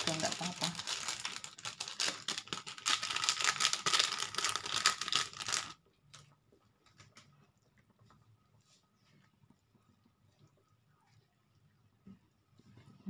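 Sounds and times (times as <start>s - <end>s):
plastic sachet tearing and crinkling: 0.0s - 5.8s.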